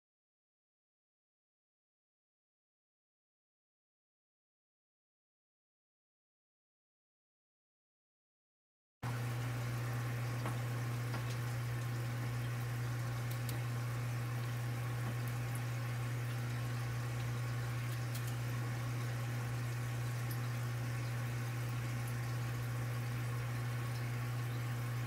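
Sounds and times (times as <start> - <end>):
steady low hum: 9.0 - 25.0
faint clicks: 13.2 - 13.6, 17.8 - 18.4.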